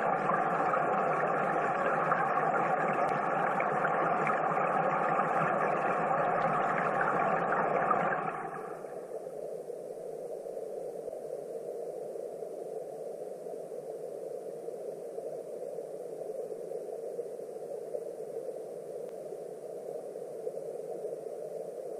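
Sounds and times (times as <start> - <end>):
muffled underwater stream rush: 0.0 - 10.0.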